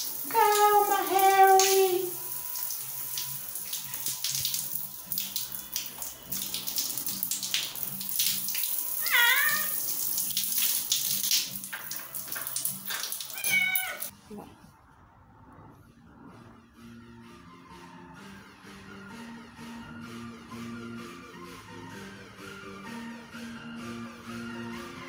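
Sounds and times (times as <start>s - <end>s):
running water splashing: 0.0s - 14.1s
wet patting and rubbing: 0.0s - 14.1s
kitten meowing: 9.0s - 9.8s, 13.3s - 14.1s.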